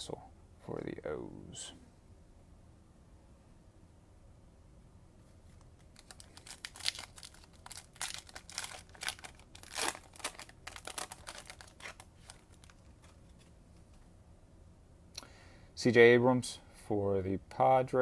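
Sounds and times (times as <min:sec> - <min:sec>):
card pack wrapper crinkling: 0:05.5 - 0:13.5.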